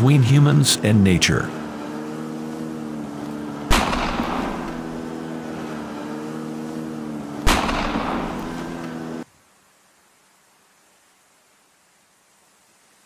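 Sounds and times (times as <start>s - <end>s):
snowmobile engine running: 0.0s - 9.2s
gunshots with echo: 3.6s - 5.2s, 7.4s - 8.8s.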